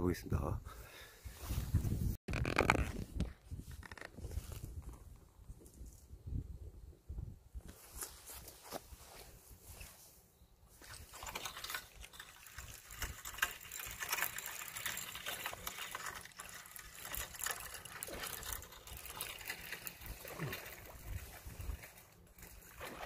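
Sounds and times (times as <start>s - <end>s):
rapid rattling and clicking: 11.2s - 22.6s
fishing reel cranking: 11.2s - 22.7s.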